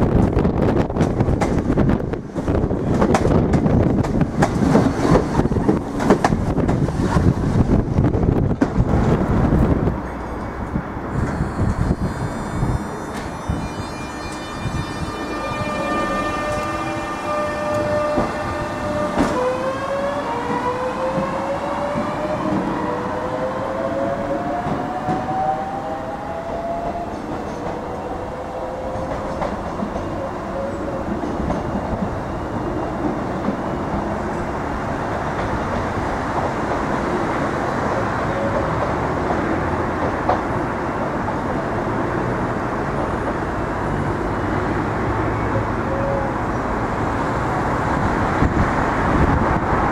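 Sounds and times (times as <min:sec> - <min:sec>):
train wheels on rails: 0:00.0 - 0:49.9.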